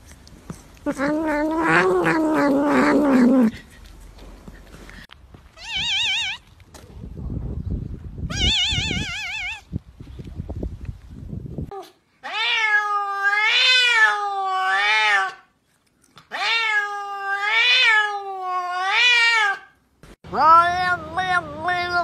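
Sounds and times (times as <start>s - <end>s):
cat meowing: 0.8s - 3.5s, 5.6s - 6.5s, 8.3s - 9.7s, 12.2s - 15.4s, 16.3s - 19.7s, 20.3s - 22.0s.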